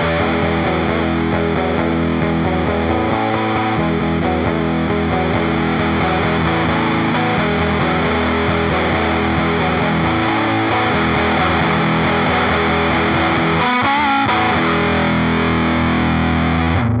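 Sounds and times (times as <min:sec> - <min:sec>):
fuzz-distorted electric guitar: 0:00.0 - 0:17.0.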